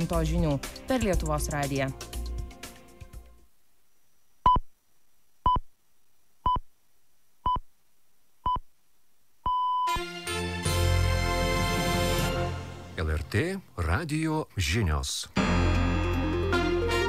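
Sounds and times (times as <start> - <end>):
news jingle music: 0.0 - 2.5, 9.9 - 14.0, 15.4 - 17.0.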